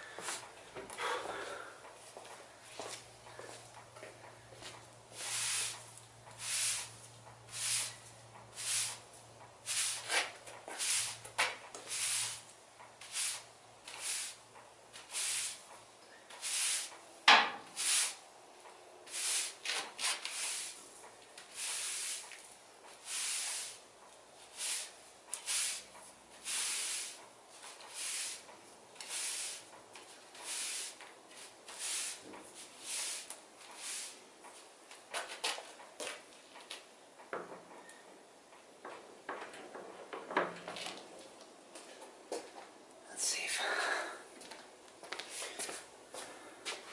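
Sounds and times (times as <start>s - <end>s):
push broom sweeping concrete: 4.6s - 17.0s, 17.6s - 18.3s, 19.0s - 34.4s.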